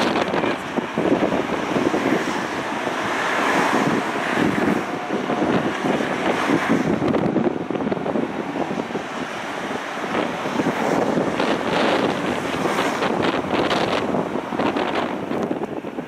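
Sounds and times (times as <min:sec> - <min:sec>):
jet engines rushing: 0:00.0 - 0:16.0
wind buffeting microphone: 0:00.0 - 0:16.0.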